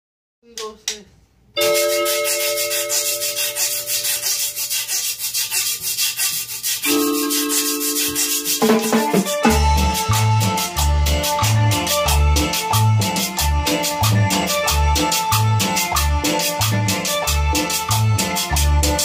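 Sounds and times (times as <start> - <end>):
held chords: 1.6 - 4.7, 6.8 - 19.0
metal guiro scraping: 1.6 - 10.6
drums steady beat: 6.8 - 19.0
bass guitar: 8.9 - 19.0.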